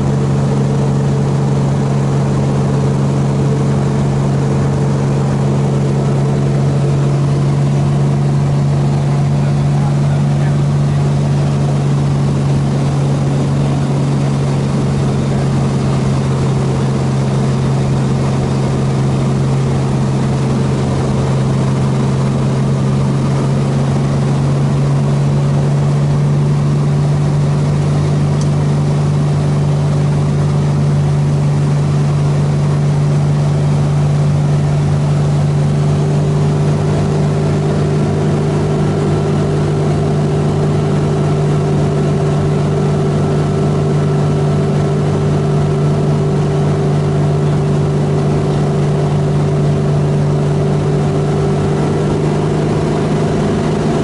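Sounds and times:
airflow rushing: 0.0 - 54.0
propeller engine droning: 0.0 - 54.0.

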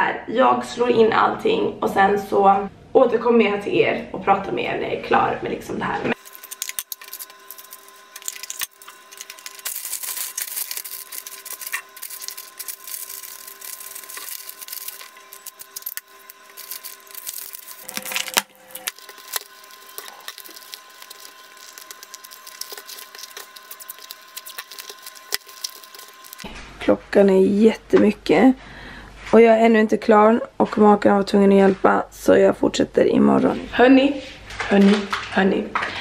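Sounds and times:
paper rustling and crinkling: 6.2 - 26.5.

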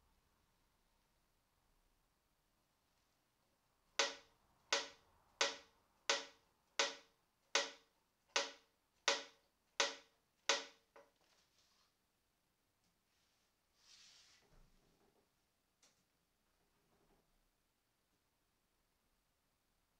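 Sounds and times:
taps on violin body ringing: 4.0 - 10.8.

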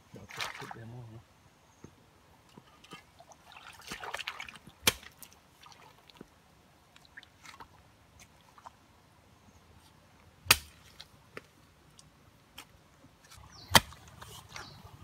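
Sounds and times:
stream water sloshing: 0.2 - 0.9, 2.6 - 8.8, 13.4 - 15.0
shovel knocking mud: 3.9 - 5.2, 10.5 - 10.9, 13.6 - 14.7.

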